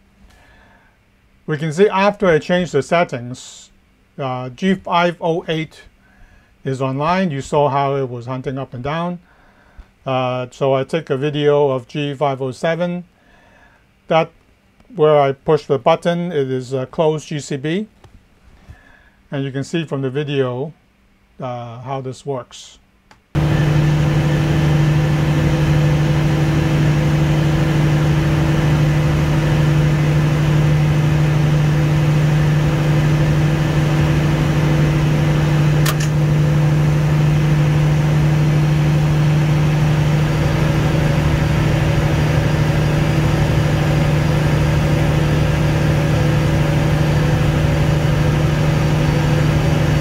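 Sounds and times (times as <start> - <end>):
generator engines humming: 23.4 - 50.0
circuit breaker click: 35.7 - 36.4.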